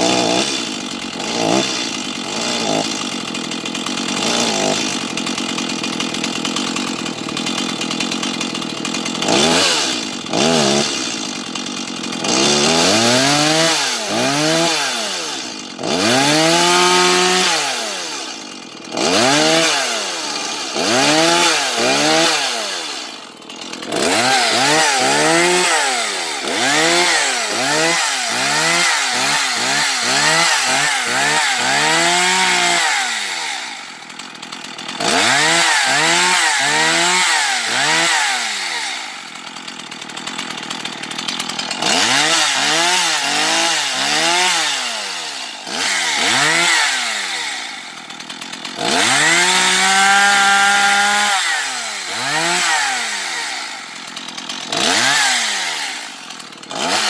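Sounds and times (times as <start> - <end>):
chainsaw engine revving: 0.0 - 57.0.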